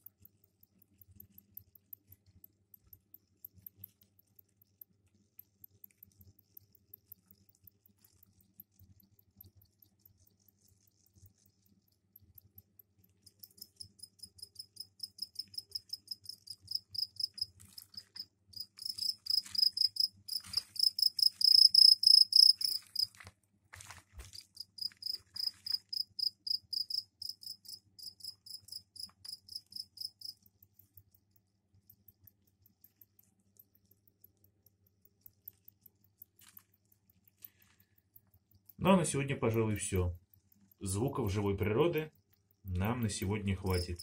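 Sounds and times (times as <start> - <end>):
crickets chirping: 13.2 - 23.1, 24.6 - 30.5, 42.8 - 44.0.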